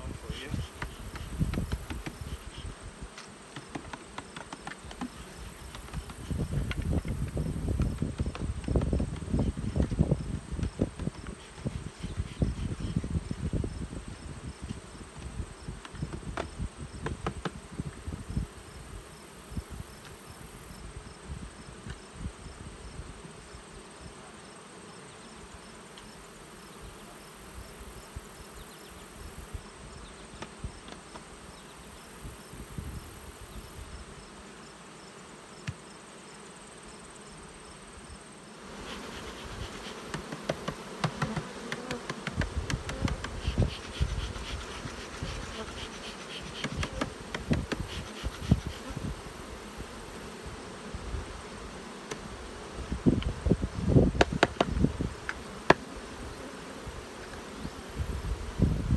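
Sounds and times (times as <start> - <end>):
bees buzzing: 0.0 - 13.8, 33.2 - 58.9.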